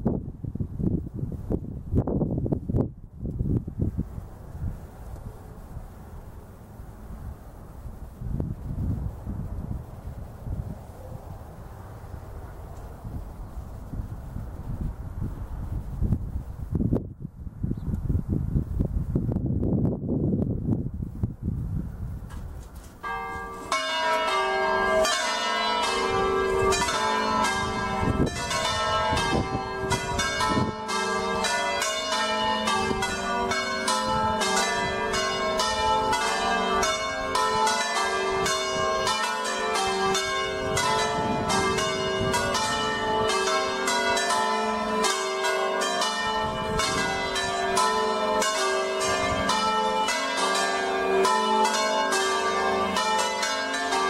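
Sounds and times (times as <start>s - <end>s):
wind buffeting microphone: 0.0s - 50.2s
church bells ringing: 23.0s - 54.0s.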